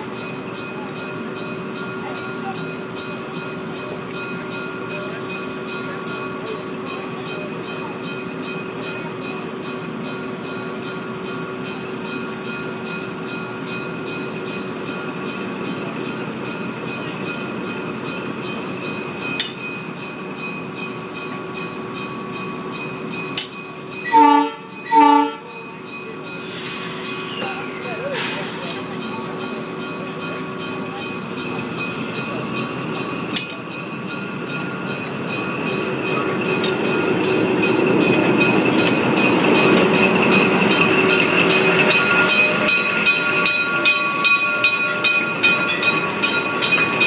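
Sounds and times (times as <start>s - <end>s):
diesel locomotive idling: 0.0s - 47.0s
locomotive horn blasts: 24.0s - 25.5s.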